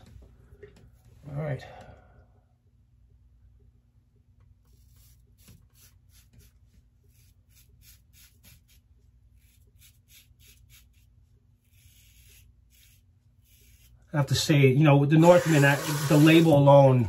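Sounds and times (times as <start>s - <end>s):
razor scraping stubble: 4.6s - 14.2s, 15.1s - 16.9s.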